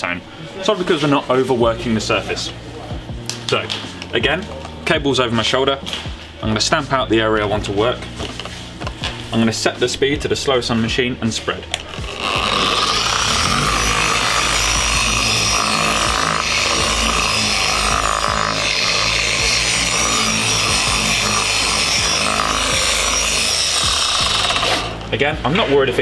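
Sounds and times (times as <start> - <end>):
polisher running steadily: 11.8 - 25.1.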